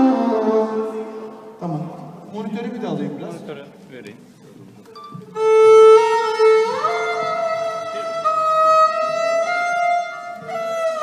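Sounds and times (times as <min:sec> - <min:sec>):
violin playing long notes: 0:00.0 - 0:02.0, 0:05.1 - 0:11.0.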